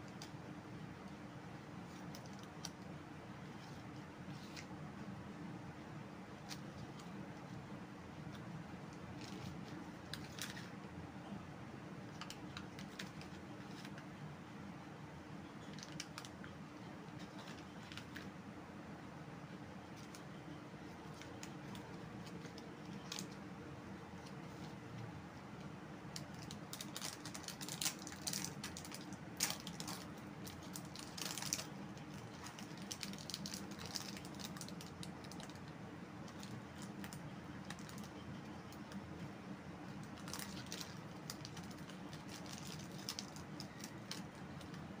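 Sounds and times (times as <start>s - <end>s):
plastic wrapper crinkling: 9.1s - 10.7s, 12.1s - 14.0s, 15.6s - 16.4s, 17.1s - 18.3s, 21.0s - 23.4s, 26.1s - 38.2s, 40.0s - 44.8s.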